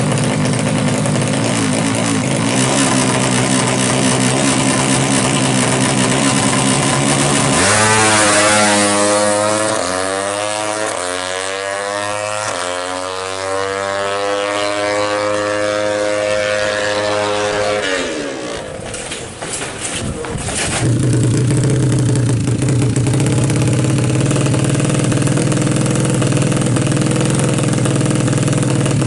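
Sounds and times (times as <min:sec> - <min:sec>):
motorcycle engine revving: 0:00.0 - 0:29.0
gear changes: 0:16.9 - 0:29.0.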